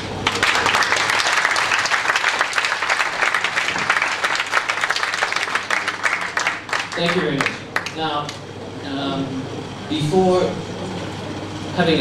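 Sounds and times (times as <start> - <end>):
audience applauding: 0.2 - 8.0.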